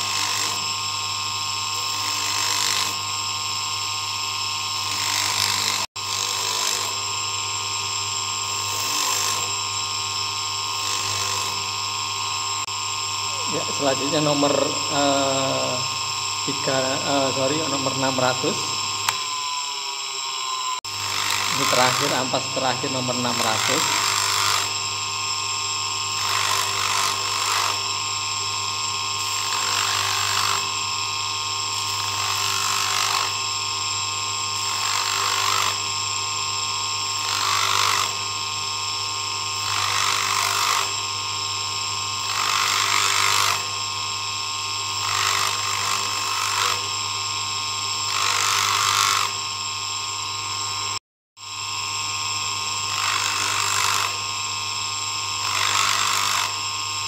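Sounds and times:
polishing motor running: 0.0 - 57.0.

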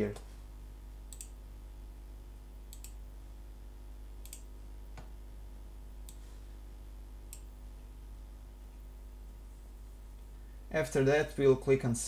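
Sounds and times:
low electrical hum: 0.0 - 12.0
computer mouse clicking: 1.1 - 1.4, 2.7 - 3.0, 4.2 - 4.5.

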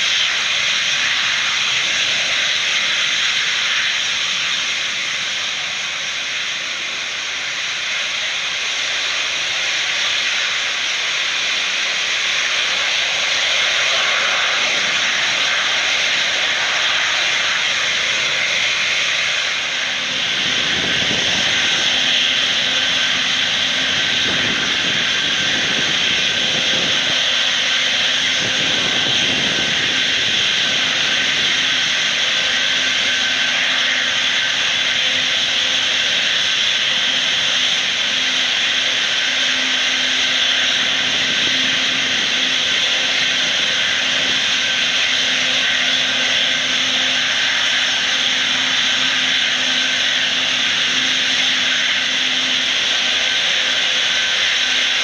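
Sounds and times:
jet engines hissing: 0.0 - 55.0.

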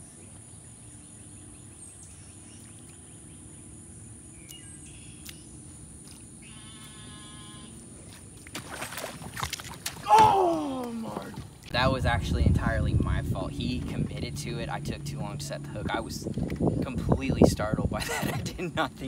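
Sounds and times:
bird chirp: 0.0 - 6.9
outdoor background: 0.0 - 19.0
fish splashing on water surface: 8.4 - 11.0.

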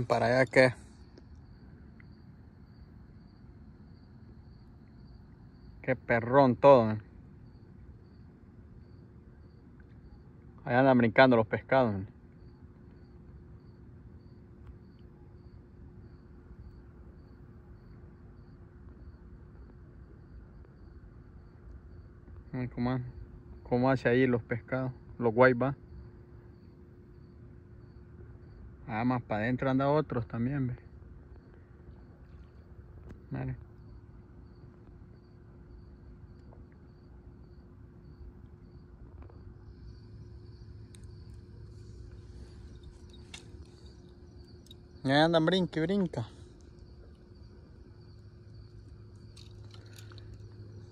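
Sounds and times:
faint steady hum: 0.0 - 50.9
insect chirping: 0.0 - 50.9
low rumbling background: 20.6 - 50.9.

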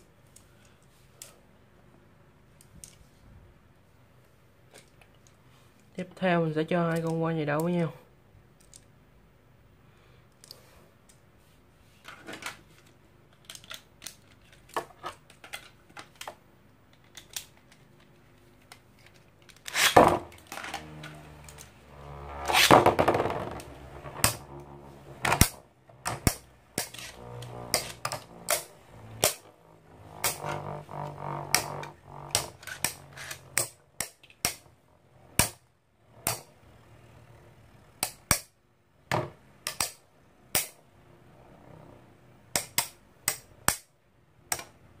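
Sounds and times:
spinning tops whirring: 19.6 - 37.8.

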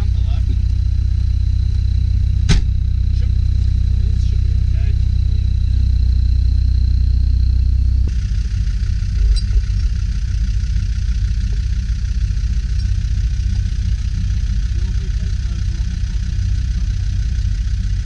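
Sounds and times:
car engine idling: 0.0 - 18.0
brief knock: 2.5 - 2.7.

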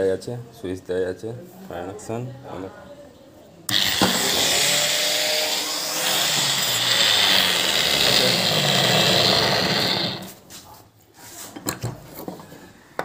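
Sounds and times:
angle grinder whining: 3.7 - 10.4.

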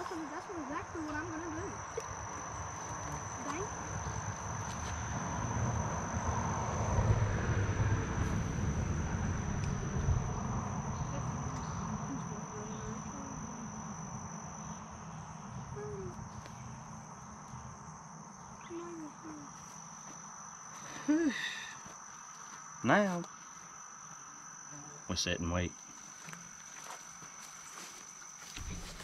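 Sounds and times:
insects droning: 0.0 - 29.0
low rumbling noise: 0.6 - 18.7.

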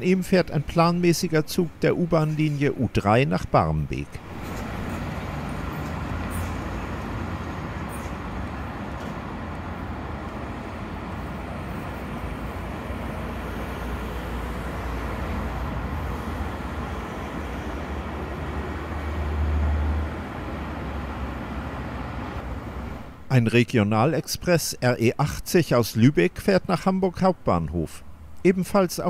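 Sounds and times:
rail and road traffic noise: 0.0 - 23.8, 24.4 - 29.0
electric train on curving track: 4.2 - 23.2.

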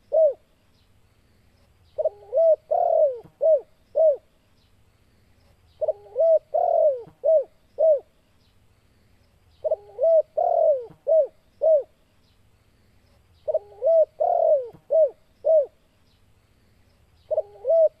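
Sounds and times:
dove cooing: 0.0 - 0.5, 2.0 - 4.3, 5.8 - 8.1, 9.6 - 12.0, 13.4 - 15.8, 17.3 - 18.0.

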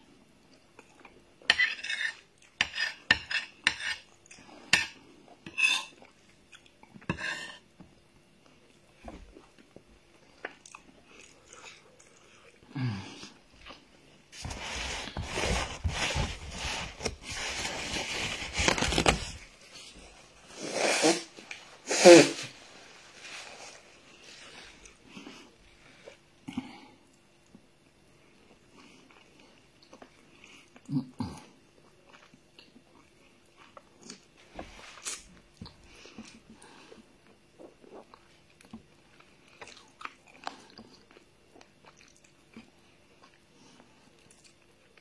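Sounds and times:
rustling: 14.4 - 20.5
nose blowing into tissue: 20.5 - 22.6.

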